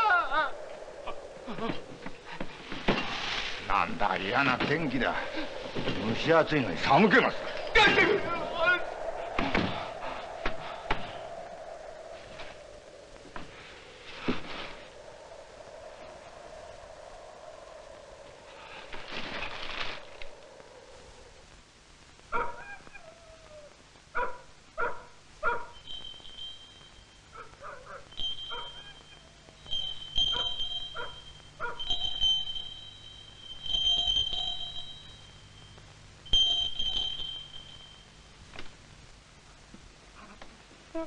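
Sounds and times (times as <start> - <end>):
rush of noise: 0.0 - 22.3
dog barking and yelping: 22.3 - 23.6, 24.2 - 25.8, 27.4 - 29.1, 30.2 - 32.1.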